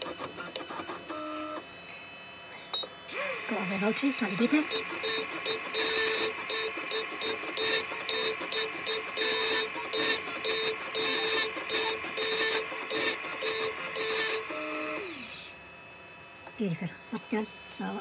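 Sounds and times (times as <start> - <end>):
engraving machine motors running: 3.0 - 15.6
machine winding down whine: 3.1 - 15.6.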